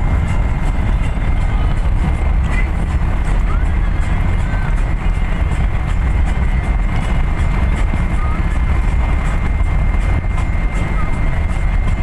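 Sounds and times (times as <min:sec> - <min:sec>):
vehicle driving at highway speed: 0:00.0 - 0:12.0.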